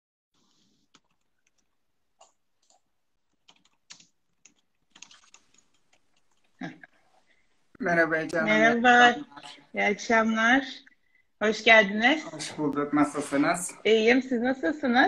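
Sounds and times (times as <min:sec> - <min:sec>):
typing taps on device: 0:00.9 - 0:06.5.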